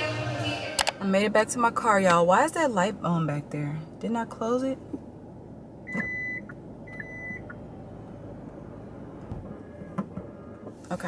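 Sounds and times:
low steady cabin hum: 0:00.0 - 0:11.0
car warning chime beeping: 0:05.8 - 0:07.6.

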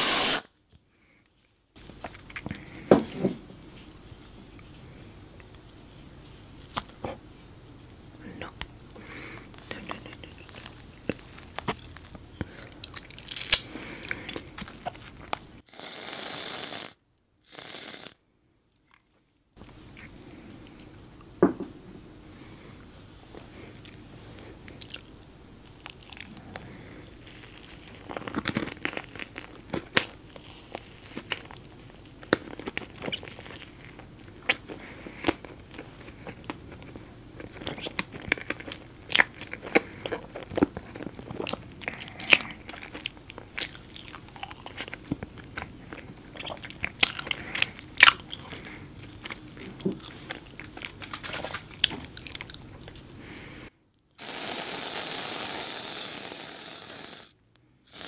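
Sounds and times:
person chewing cake: 0:03.8 - 0:15.6, 0:23.4 - 0:53.2.

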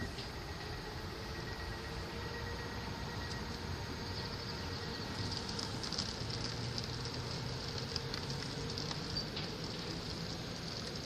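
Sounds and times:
faint electric train hum: 0:00.0 - 0:11.0
steady hiss: 0:00.0 - 0:11.0.

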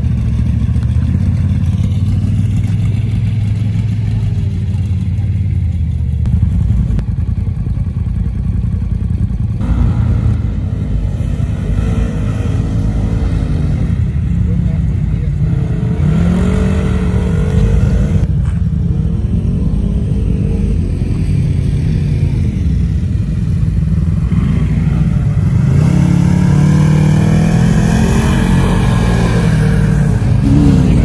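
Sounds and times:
utility vehicle engines revving: 0:00.0 - 0:31.0.

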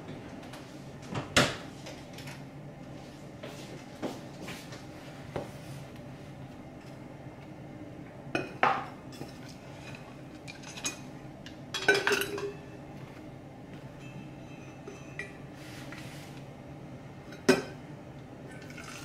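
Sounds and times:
kitchen items clinking on countertop: 0:11.8 - 0:12.6.

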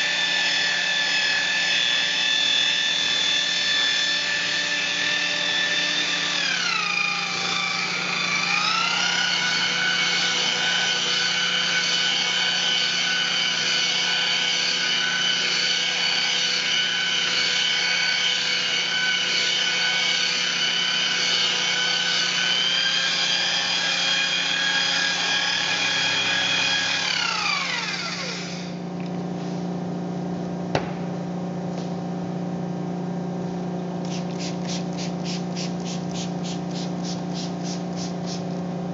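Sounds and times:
polisher motor whine: 0:00.0 - 0:28.8.

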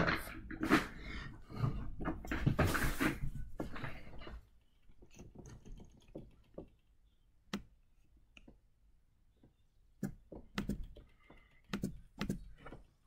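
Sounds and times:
rustling and bumping handling noise: 0:01.6 - 0:07.0.

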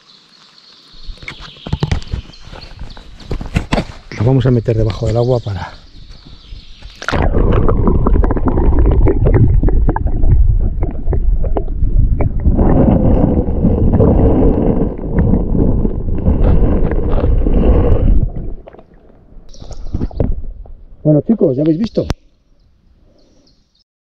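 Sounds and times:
underwater rumble and gurgle: 0:07.1 - 0:20.9.

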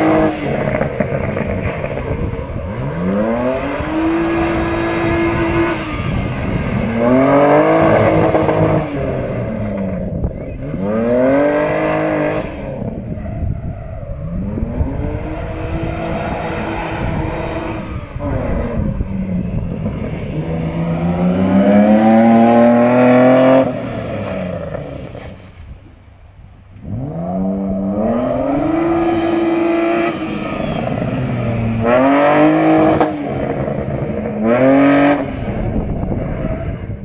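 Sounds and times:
car engine revving hard: 0:00.0 - 0:13.2, 0:14.3 - 0:25.4, 0:26.8 - 0:37.0.

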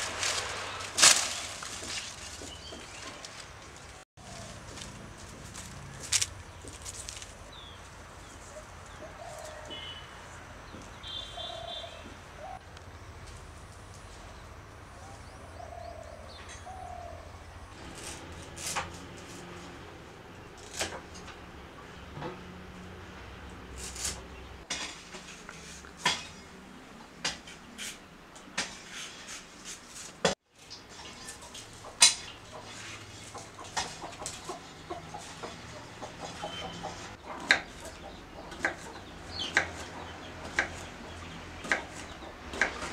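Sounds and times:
small birds calling: 0:05.9 - 0:13.3, 0:30.6 - 0:42.9
hens clucking: 0:31.4 - 0:42.9.

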